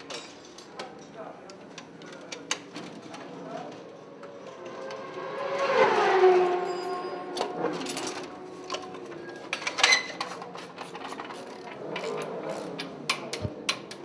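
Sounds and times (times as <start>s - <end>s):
racing motorcycle engine: 4.4s - 9.4s
hand tools clicking and knocking: 7.4s - 14.0s.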